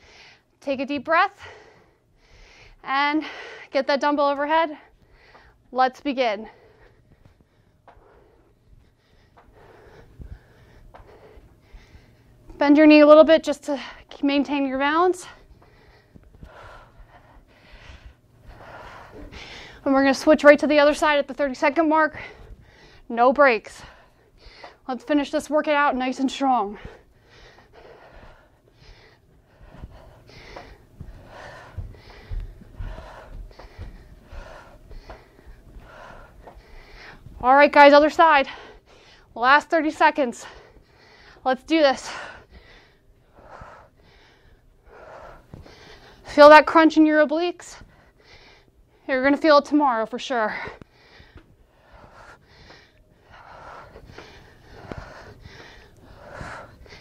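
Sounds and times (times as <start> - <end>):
woman breathing from exertion: 6.4 - 12.6, 15.2 - 19.9, 22.2 - 23.1, 26.7 - 37.4, 40.4 - 46.3, 50.5 - 57.0.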